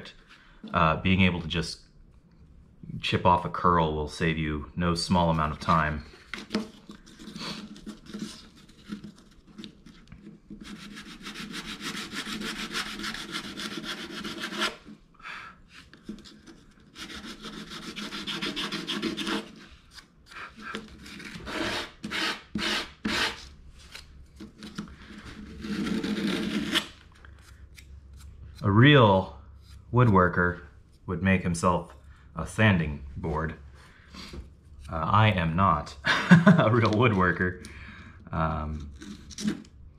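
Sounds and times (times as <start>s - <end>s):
sandpaper rasping on wood: 10.6s - 14.8s, 17.0s - 19.7s, 21.1s - 23.4s.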